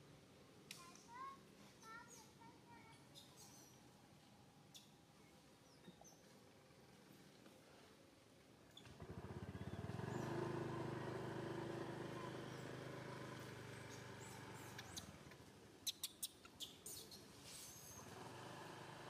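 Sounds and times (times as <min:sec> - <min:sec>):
vehicle engine passing: 0:09.0 - 0:15.3.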